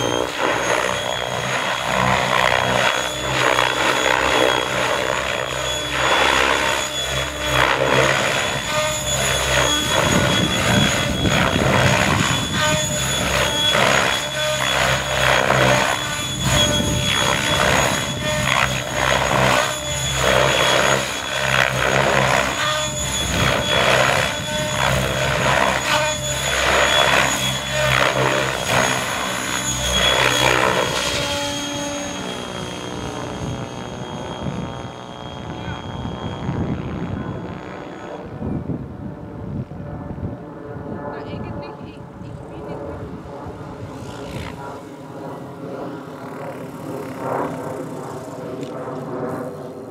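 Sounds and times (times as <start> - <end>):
model helicopter whine and rotor: 0.0 - 49.9.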